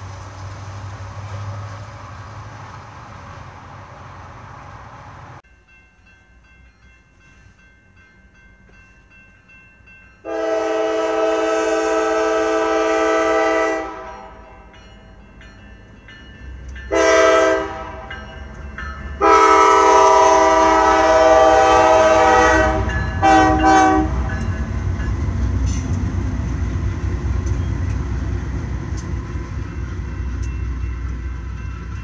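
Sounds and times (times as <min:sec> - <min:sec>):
train rumbling: 0:00.0 - 0:32.0
locomotive air horn blasts: 0:10.2 - 0:14.4, 0:16.9 - 0:18.1, 0:19.2 - 0:24.4
wheels on rails: 0:24.0 - 0:32.0.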